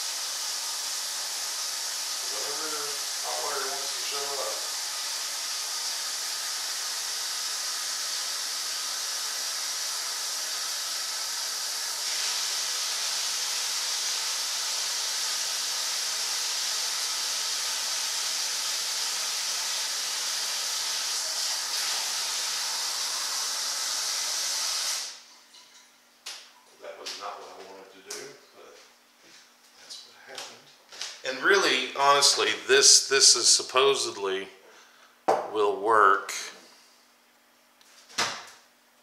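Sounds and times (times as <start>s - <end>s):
steady rushing hiss: 0.0s - 6.9s.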